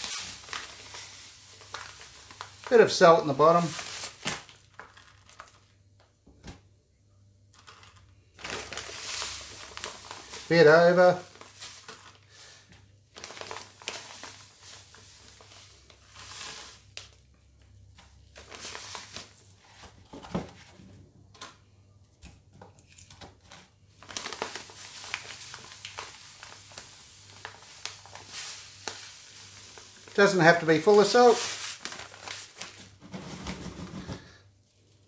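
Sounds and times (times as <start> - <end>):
salt rustling: 0.0 - 5.6, 7.6 - 17.2, 24.0 - 32.8
salt bag crinkling: 0.0 - 5.8, 7.5 - 12.4, 13.1 - 17.2, 18.0 - 19.9, 23.9 - 33.0.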